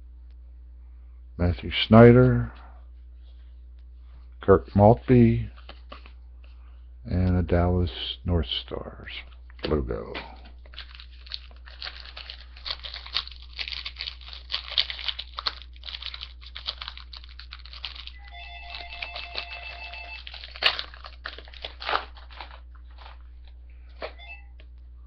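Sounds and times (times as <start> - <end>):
cards shuffled by hand: 5.5 - 6.2, 10.6 - 24.1
card pack wrapper tearing open: 10.6 - 23.2.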